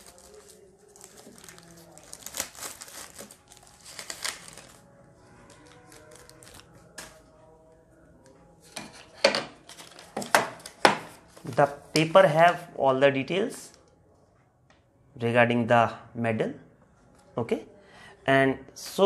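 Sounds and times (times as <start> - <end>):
plastic wrap crinkling: 0.0 - 4.9, 5.5 - 7.2
faint music: 0.0 - 19.0.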